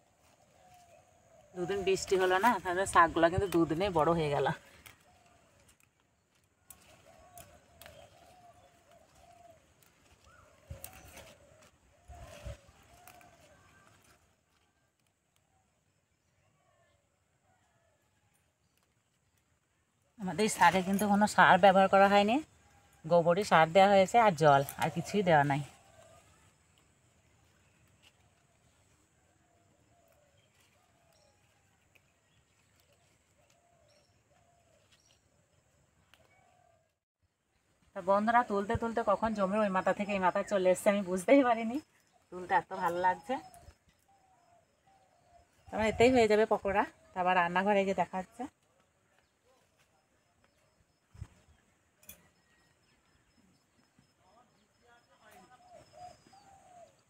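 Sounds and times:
small bird chirping: 0:20.3 - 0:36.9, 0:38.7 - 0:47.4, 0:48.1 - 0:57.0
dove cooing: 0:55.3 - 0:57.0.

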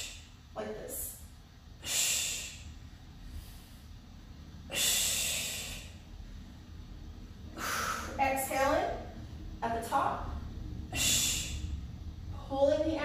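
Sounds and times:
woman exhaling forcefully: 0:00.0 - 0:00.3, 0:01.8 - 0:02.7, 0:04.7 - 0:06.0, 0:07.5 - 0:08.2, 0:10.9 - 0:11.8.

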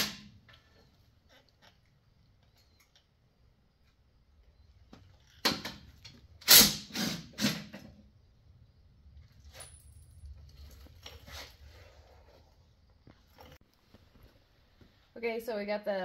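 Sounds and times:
power tool bursts: 0:06.4 - 0:07.9.

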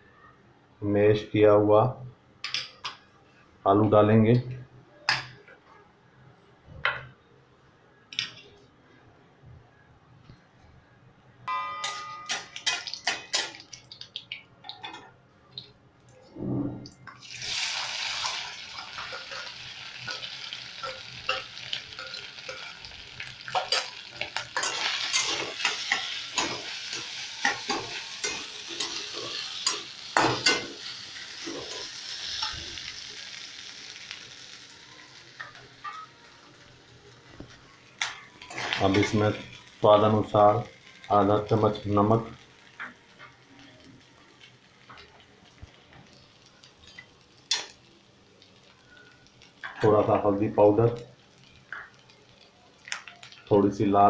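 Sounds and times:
hot oil sizzling: 0:11.8 - 0:15.7, 0:17.1 - 0:54.0.

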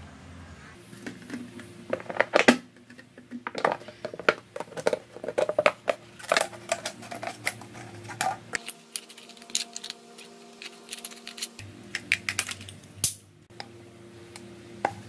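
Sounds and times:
plastic bottle crackling: 0:00.9 - 0:08.5.

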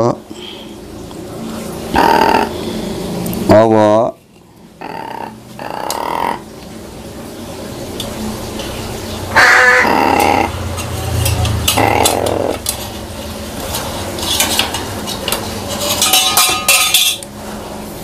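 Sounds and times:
harsh bursts: 0:09.3 - 0:10.6.

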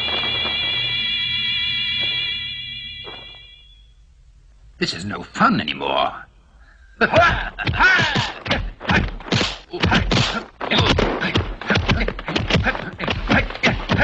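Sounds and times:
punches and kicks thudding: 0:07.2 - 0:14.0.

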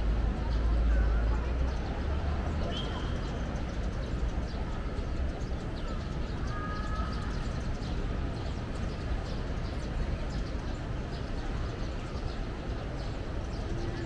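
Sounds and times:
low street rumble: 0:00.0 - 0:14.0.

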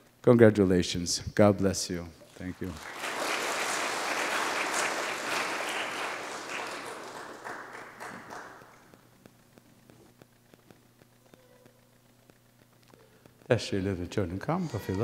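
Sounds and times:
crowd applauding: 0:02.4 - 0:09.0.

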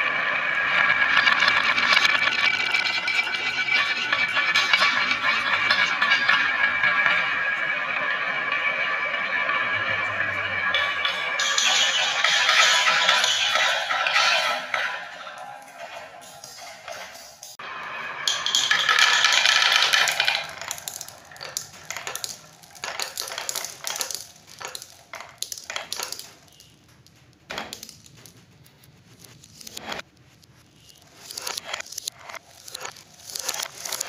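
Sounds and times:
marbles rolling and clacking: 0:00.0 - 0:28.4, 0:30.8 - 0:34.0.

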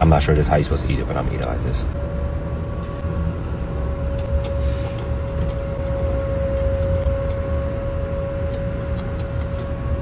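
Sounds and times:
low vehicle rumble: 0:00.0 - 0:10.0
mid-pitched hum: 0:00.0 - 0:10.0
chewing clicks: 0:08.5 - 0:09.6.

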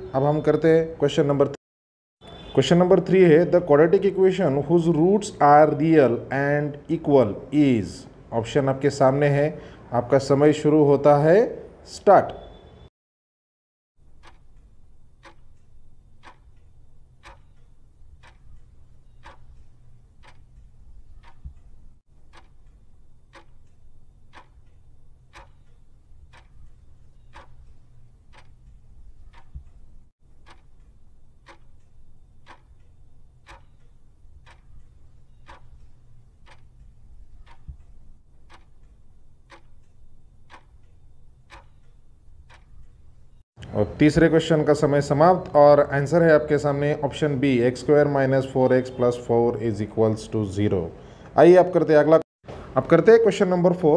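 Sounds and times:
clock ticking: 0:14.0 - 0:43.4.

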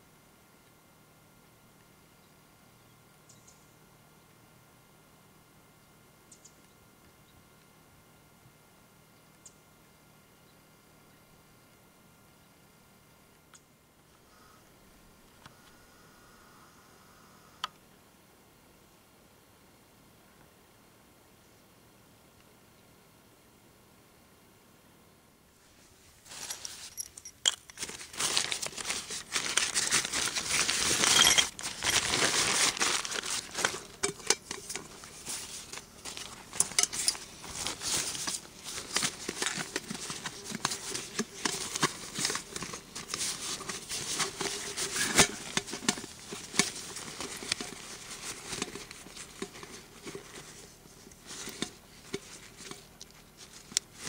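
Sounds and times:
nylon sacks rustling: 0:27.8 - 0:52.8.

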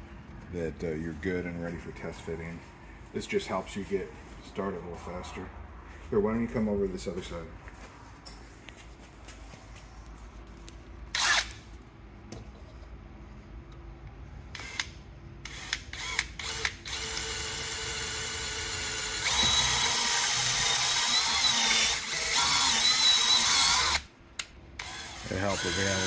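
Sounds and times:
cordless drill boring: 0:11.1 - 0:11.6, 0:14.5 - 0:24.1, 0:24.8 - 0:26.0.

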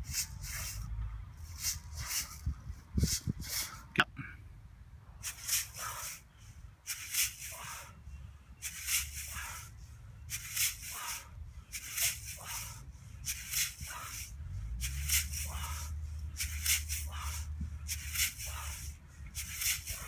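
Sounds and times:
wind rumble on microphone: 0:00.0 - 0:04.0
training bar swing whoosh: 0:00.1 - 0:04.0, 0:08.6 - 0:20.0.

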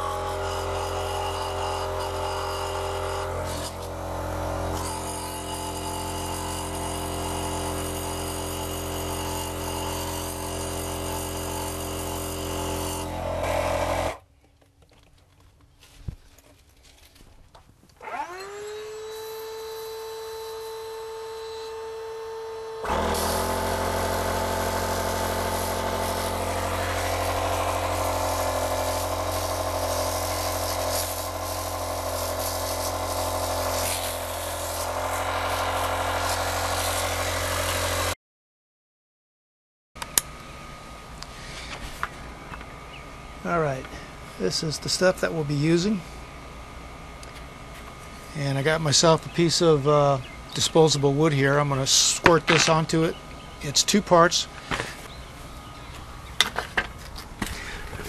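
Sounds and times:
electric pump motor humming: 0:00.0 - 0:14.3, 0:18.0 - 0:38.2, 0:51.8 - 0:58.0.

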